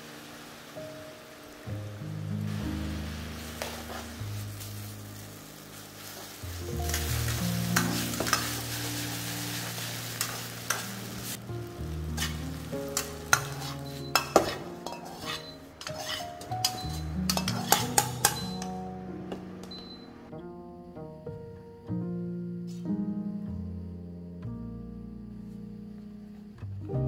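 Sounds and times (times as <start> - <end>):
noodles sizzling in pan: 0.0 - 19.0
ladle scraping and clacking on pan: 6.2 - 9.0, 10.2 - 11.1, 12.2 - 18.8.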